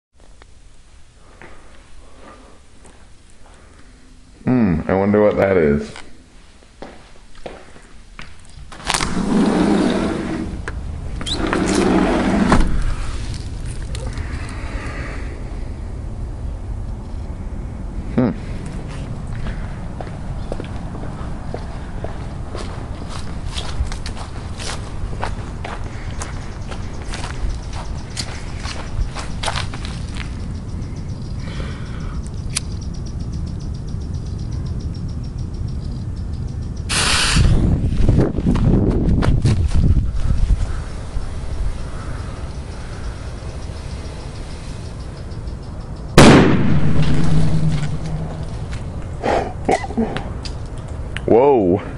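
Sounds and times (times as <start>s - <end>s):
sliding glass door rolling: 8.9s - 10.6s, 11.2s - 12.8s
running footsteps on dry ground: 18.8s - 30.5s
fuse hissing sharply: 36.9s - 37.7s.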